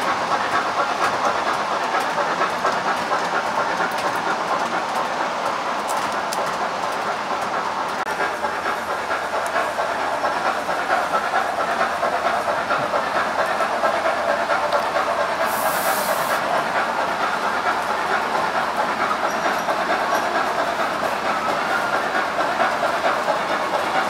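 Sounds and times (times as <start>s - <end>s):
steam hiss: 8.2s - 24.0s.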